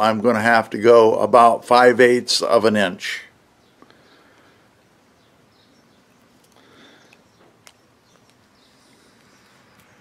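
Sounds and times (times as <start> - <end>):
faint rural ambience: 0.0 - 10.0
faint bird chirps: 3.5 - 10.0.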